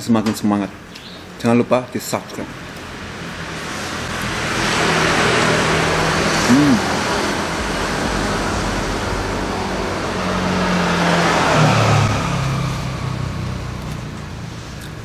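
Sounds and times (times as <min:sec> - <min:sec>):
traffic rushing past: 0:00.7 - 0:15.0
low engine hum: 0:03.6 - 0:15.0
rising and falling tone: 0:04.1 - 0:13.9.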